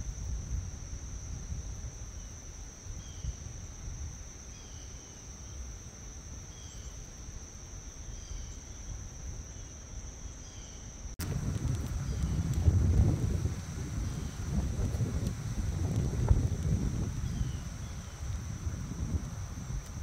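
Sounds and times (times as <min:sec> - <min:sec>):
high-pitched insect trill: 0:00.0 - 0:20.0
low outdoor rumble: 0:11.2 - 0:20.0.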